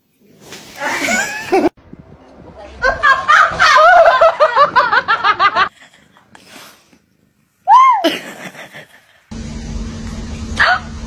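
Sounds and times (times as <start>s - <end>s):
person laughing hard: 0.8s - 1.7s, 2.8s - 5.7s, 8.0s - 9.2s.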